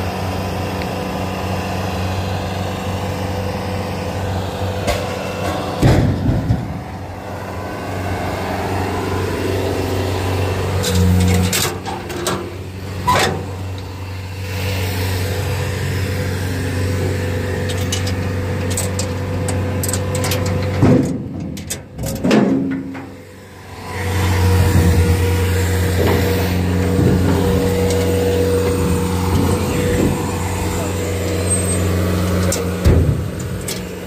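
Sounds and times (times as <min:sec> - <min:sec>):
diesel engine running: 0:00.0 - 0:34.0.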